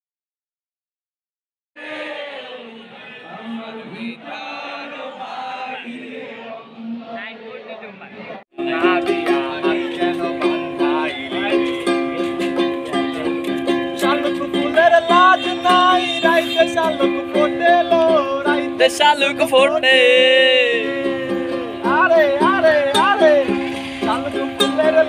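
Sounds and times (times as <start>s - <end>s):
man singing: 8.5s - 25.0s
ukulele strumming: 8.6s - 25.0s.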